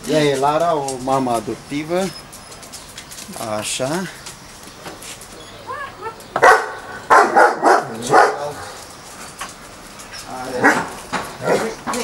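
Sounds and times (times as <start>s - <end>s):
dog barking: 6.4s - 8.7s, 10.6s - 11.8s.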